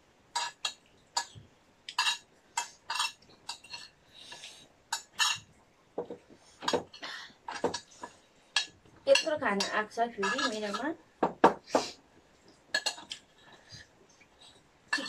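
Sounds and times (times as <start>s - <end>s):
spoons clinking on plates: 0.4s - 4.0s, 4.9s - 5.5s, 8.6s - 10.9s, 12.7s - 13.2s.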